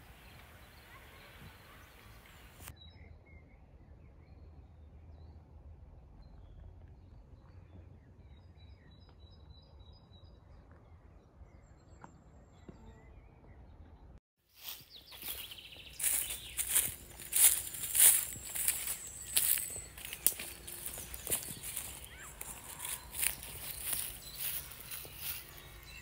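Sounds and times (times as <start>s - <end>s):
faint birds chirping: 0.0s - 26.0s
footsteps in dry leaves: 14.5s - 26.0s.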